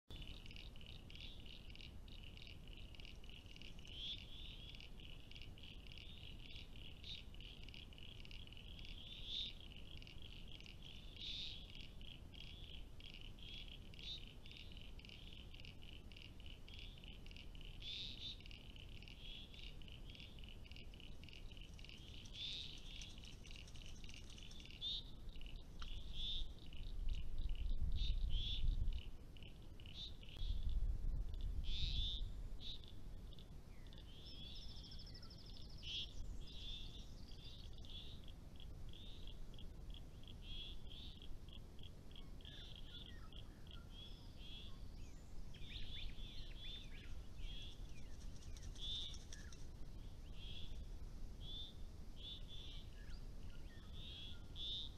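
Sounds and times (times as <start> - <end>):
frogs calling in rapid pulses: 0.1 - 34.1, 37.6 - 44.7, 47.4 - 49.7
bird calls: 0.1 - 50.8, 51.4 - 54.9.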